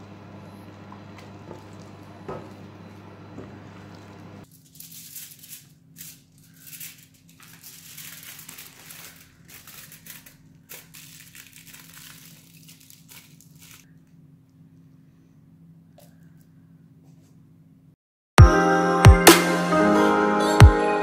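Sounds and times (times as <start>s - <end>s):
aluminium foil crinkling: 3.9s - 14.2s.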